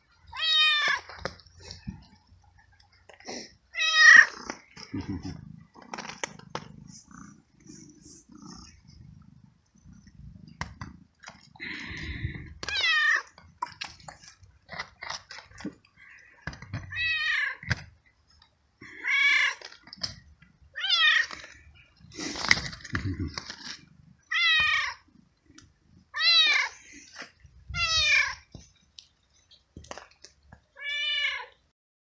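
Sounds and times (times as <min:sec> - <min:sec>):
young cat meowing: 0:03.7 - 0:04.4, 0:16.8 - 0:17.8, 0:24.3 - 0:25.0, 0:26.1 - 0:26.8, 0:27.7 - 0:28.5, 0:30.8 - 0:31.6.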